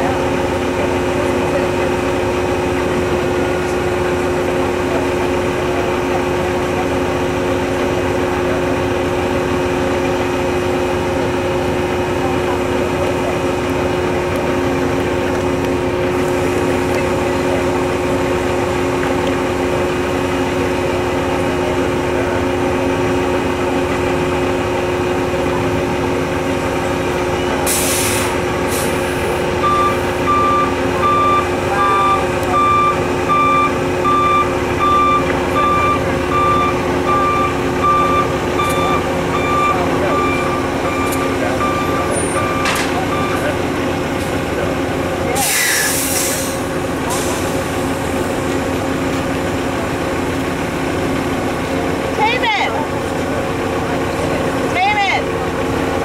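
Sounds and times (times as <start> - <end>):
truck backup alarm beeping: 0.0 - 44.5
diesel engine running: 0.0 - 56.0
air brakes hissing: 27.6 - 30.2, 45.4 - 48.2.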